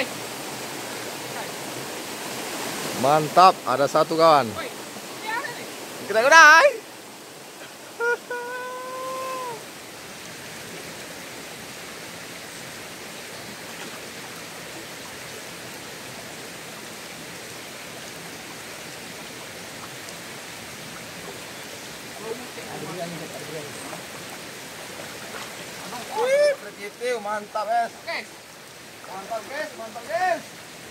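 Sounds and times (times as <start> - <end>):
stream running over rocks: 0.0 - 30.9
person calling out: 8.0 - 9.7, 26.0 - 26.6.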